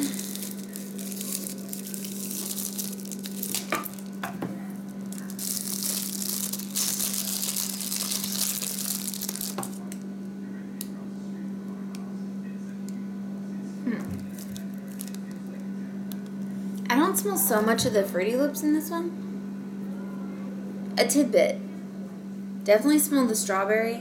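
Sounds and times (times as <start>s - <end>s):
plastic wrap crinkling: 0.0s - 10.0s, 14.2s - 15.6s.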